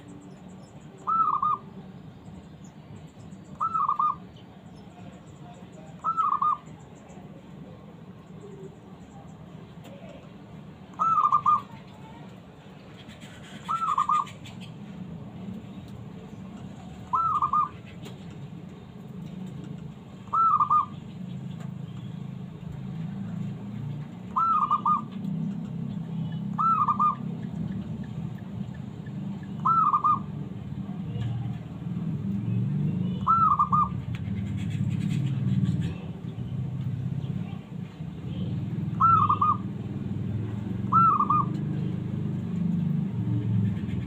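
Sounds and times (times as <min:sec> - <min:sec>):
dove cooing: 0:01.0 - 0:01.7, 0:03.6 - 0:04.2, 0:06.0 - 0:06.7, 0:10.9 - 0:11.8, 0:13.4 - 0:14.5, 0:16.9 - 0:18.1, 0:20.2 - 0:21.0, 0:24.3 - 0:25.2, 0:26.5 - 0:27.3, 0:29.6 - 0:30.4, 0:33.1 - 0:36.1, 0:38.8 - 0:39.8, 0:40.8 - 0:41.9.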